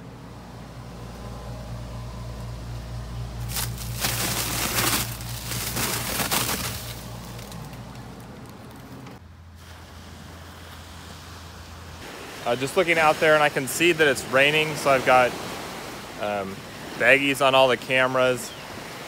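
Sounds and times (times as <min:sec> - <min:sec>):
freezer hum: 0:00.0 - 0:09.6
plastic bag of ice crinkling: 0:03.4 - 0:09.1.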